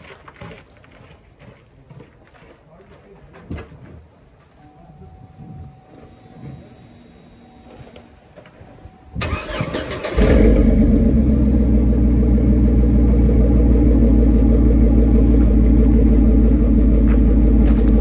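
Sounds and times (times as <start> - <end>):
truck engine idling: 9.2 - 18.0.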